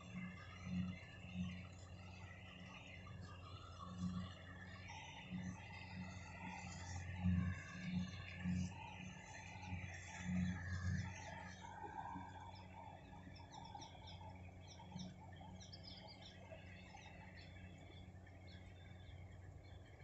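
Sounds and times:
distant combine harvester drone: 0:00.0 - 0:20.0
small birds chirping: 0:12.2 - 0:20.0.

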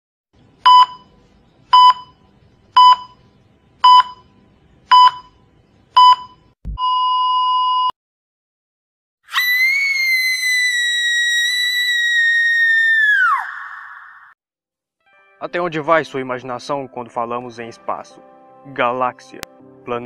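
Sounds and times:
heart monitor beeps: 0:00.6 - 0:01.1, 0:01.7 - 0:02.2, 0:02.8 - 0:03.2, 0:03.8 - 0:04.3, 0:04.9 - 0:05.4, 0:06.0 - 0:07.9.

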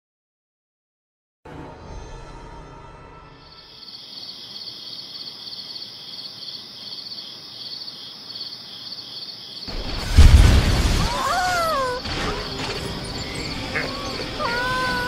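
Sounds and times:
crickets chirping: 0:03.4 - 0:15.0
loud boom with deep rumble: 0:09.7 - 0:11.2.

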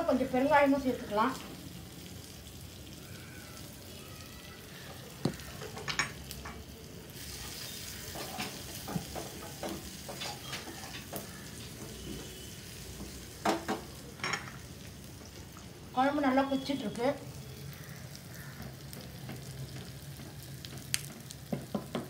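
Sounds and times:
spices sizzling in a pan: 0:00.0 - 0:22.0
wooden spatula knocking on pan: 0:08.2 - 0:11.3, 0:20.2 - 0:22.0.

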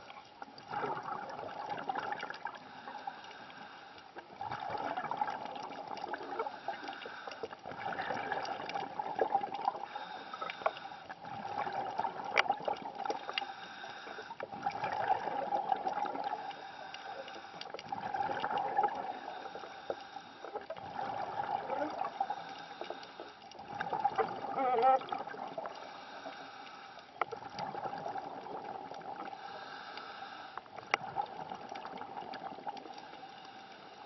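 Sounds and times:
underwater breathing bubbles: 0:00.0 - 0:34.0
faint clicks: 0:05.6 - 0:07.6, 0:09.6 - 0:14.8, 0:15.9 - 0:20.8, 0:22.3 - 0:33.9.

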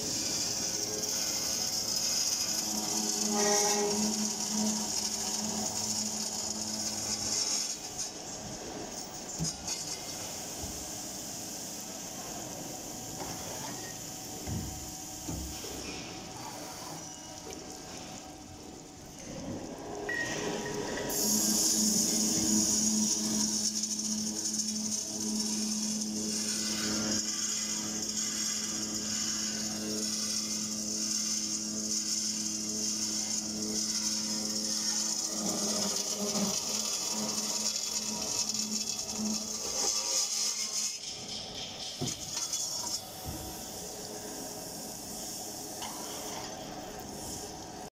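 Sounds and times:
circular saw machine hissing: 0:00.0 - 0:47.9
saw motor low tone: 0:02.2 - 0:07.4.

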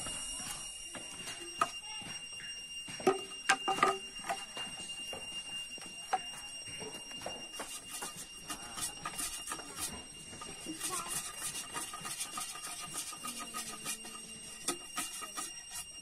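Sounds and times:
high-pitched whine: 0:00.0 - 0:16.0
bamboo sections clacking together: 0:03.0 - 0:04.4, 0:07.6 - 0:09.9, 0:10.7 - 0:16.0.

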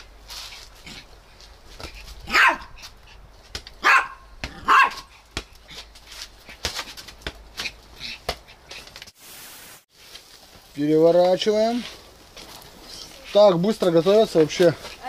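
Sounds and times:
small dog barking: 0:02.3 - 0:02.7, 0:03.8 - 0:05.1.

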